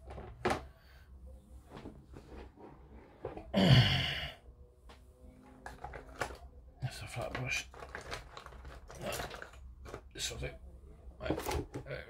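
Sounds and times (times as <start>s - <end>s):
rustling of handled items: 1.5s - 3.5s, 5.4s - 10.5s, 11.2s - 12.0s.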